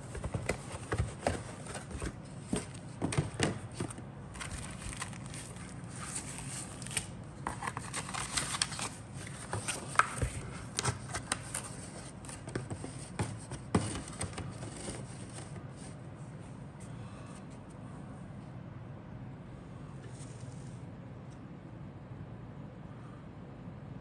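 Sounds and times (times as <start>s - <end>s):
cardboard and paper scraping: 0.0s - 16.0s
plastic bag crinkling: 4.3s - 9.0s.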